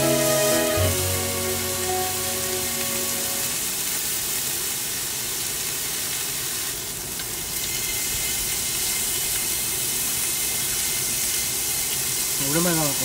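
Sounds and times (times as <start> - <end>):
meat sizzling on griddle pan: 3.8 - 13.0.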